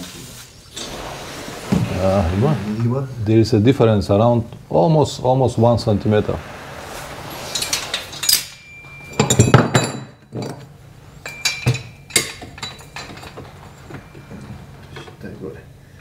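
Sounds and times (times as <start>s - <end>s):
metal tools clinking and knocking: 7.4s - 15.3s.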